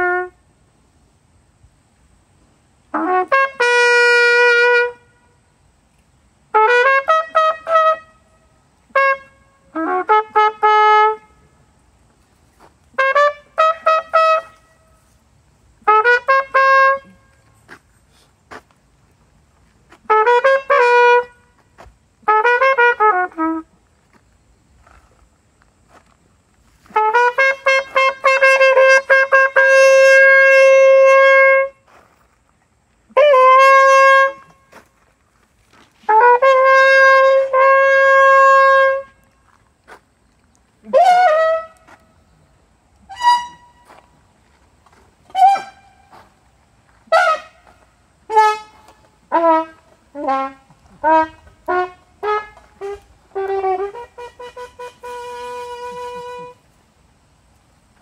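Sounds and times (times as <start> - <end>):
solo trumpet playing: 0.0 - 0.4, 2.9 - 5.5, 6.5 - 11.6, 12.9 - 15.2, 15.8 - 17.7, 20.0 - 21.6, 22.2 - 23.8, 26.8 - 32.0, 33.1 - 34.8, 36.0 - 39.3, 40.8 - 42.3, 43.0 - 44.1, 45.2 - 46.4, 47.0 - 56.7.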